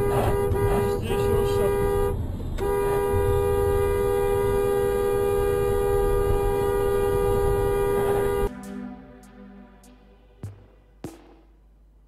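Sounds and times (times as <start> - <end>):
car horn blast: 0.0 - 8.5
road rumble: 0.0 - 12.0.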